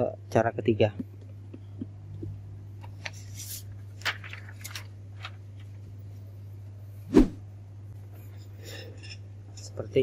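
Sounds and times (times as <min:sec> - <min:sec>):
steady low hum: 0:00.0 - 0:10.0
paper rustling: 0:02.9 - 0:05.7.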